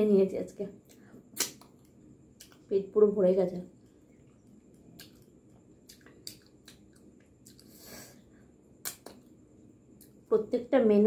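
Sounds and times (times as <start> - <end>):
wet mouth clicks and chewing: 0.9 - 2.7, 4.1 - 7.8, 8.8 - 9.4.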